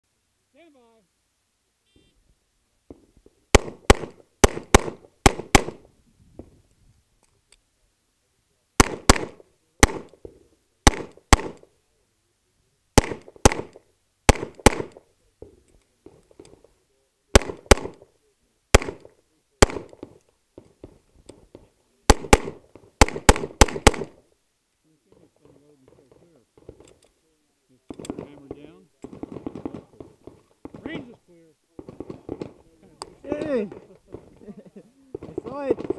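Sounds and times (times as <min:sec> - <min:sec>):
pistol shots: 0:03.5 - 0:05.9, 0:08.8 - 0:11.7, 0:13.0 - 0:15.1, 0:17.3 - 0:18.1, 0:18.7 - 0:20.2, 0:22.1 - 0:24.2, 0:27.9 - 0:31.0, 0:31.8 - 0:34.3, 0:35.2 - 0:35.9.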